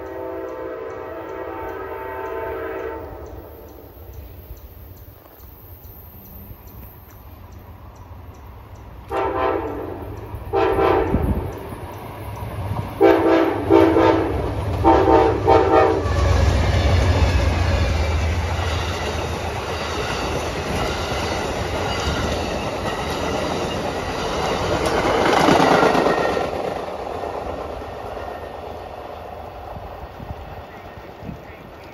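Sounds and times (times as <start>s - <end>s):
train horn blasts: 0.0s - 3.8s, 9.1s - 11.6s, 13.0s - 17.4s
train wheels clacking on rails: 0.0s - 31.9s.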